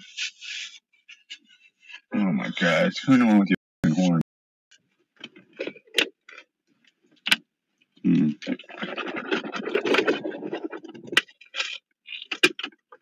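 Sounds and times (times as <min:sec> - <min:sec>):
scraping and rustling handling noise: 0:08.5 - 0:13.0.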